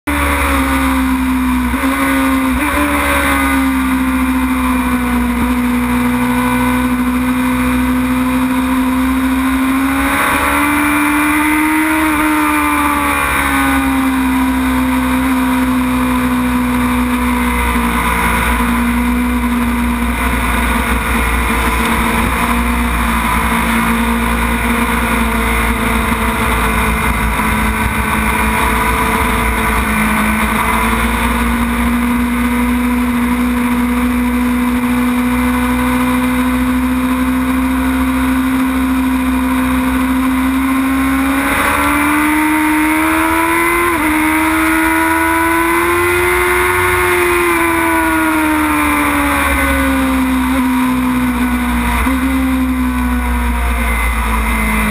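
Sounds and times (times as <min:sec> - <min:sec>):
motorcycle engine at high revs: 0:00.0 - 0:54.9
steady rushing noise: 0:15.8 - 0:38.0.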